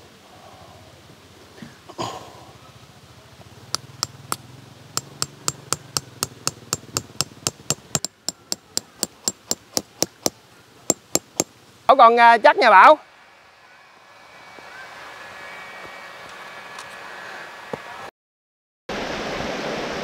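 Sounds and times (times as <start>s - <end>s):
tent stake being hammered: 3.8s - 4.4s, 5.0s - 11.6s.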